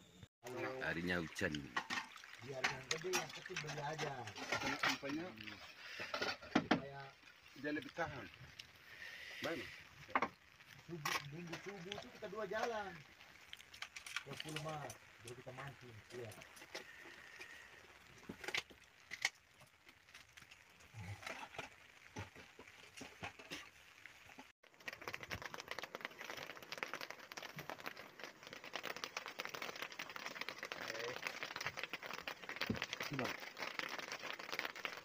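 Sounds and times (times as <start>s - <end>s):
rain pattering on canopy: 0.4s - 35.0s.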